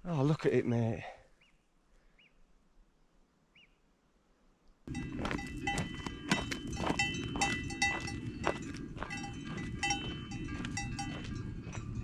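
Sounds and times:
cowbells clanking: 4.9s - 12.0s.

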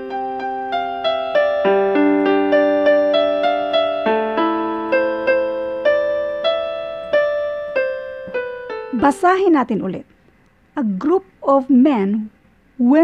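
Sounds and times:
piano music: 0.0s - 10.0s.

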